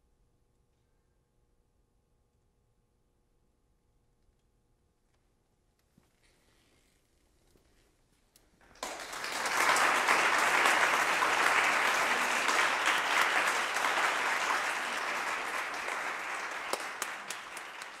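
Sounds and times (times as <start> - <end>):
audience applauding: 8.6 - 18.0.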